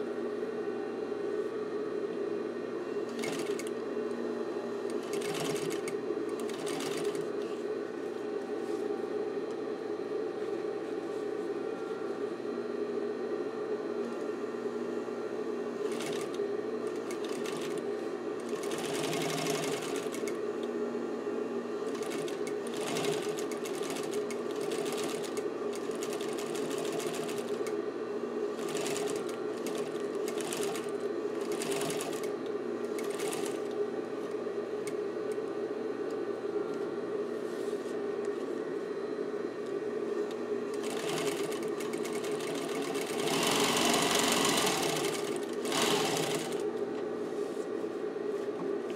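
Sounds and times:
sewing machine motor humming: 0:03.0 - 0:04.2, 0:04.8 - 0:07.7, 0:15.8 - 0:20.7, 0:21.8 - 0:27.8, 0:28.6 - 0:33.9, 0:40.6 - 0:46.8.

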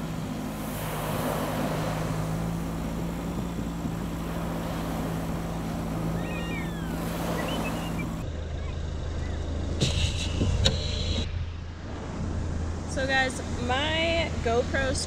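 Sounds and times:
surf washing onto beach: 0:00.0 - 0:08.2
vehicle engine idling: 0:00.0 - 0:15.0
short bird calls: 0:06.1 - 0:09.4.

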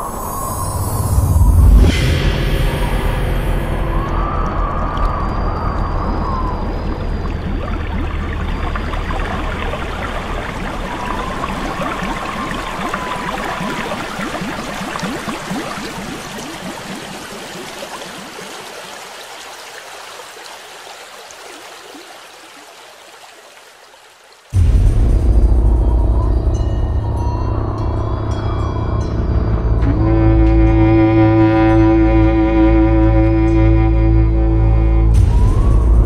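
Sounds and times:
faint wavering tone: 0:00.0 - 0:08.8
running trickling water: 0:03.5 - 0:24.6.

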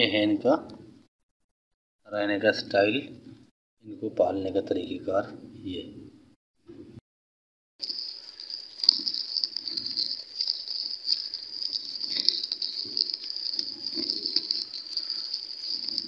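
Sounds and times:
hands rustling dry fibre: 0:07.8 - 0:16.0.

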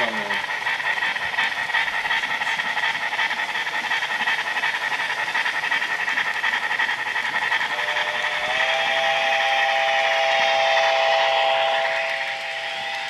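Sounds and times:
model steam locomotive exhaust rush: 0:00.0 - 0:13.0.

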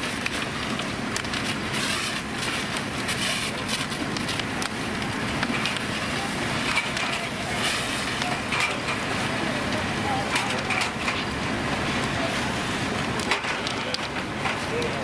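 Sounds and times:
fire crackling and popping: 0:00.0 - 0:15.0
steady rumbling: 0:00.0 - 0:15.0.

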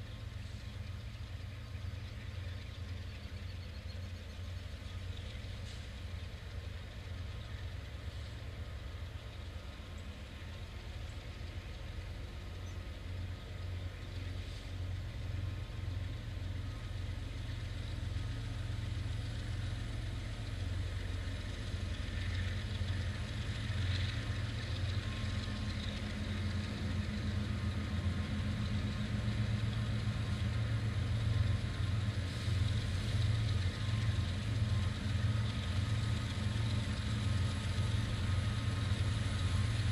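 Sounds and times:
diesel locomotive engines droning: 0:00.0 - 0:39.9.

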